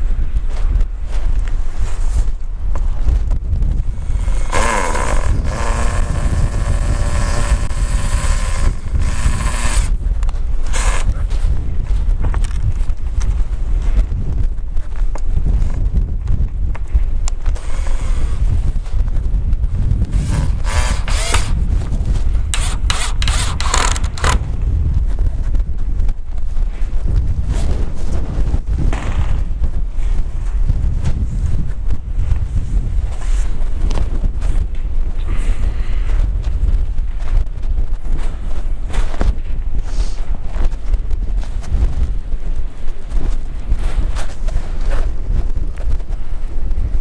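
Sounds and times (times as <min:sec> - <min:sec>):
wind rumble on microphone: 0:00.0 - 0:47.0
cordless drill whirring: 0:04.1 - 0:10.0, 0:17.6 - 0:18.5, 0:20.2 - 0:21.6, 0:22.5 - 0:24.4.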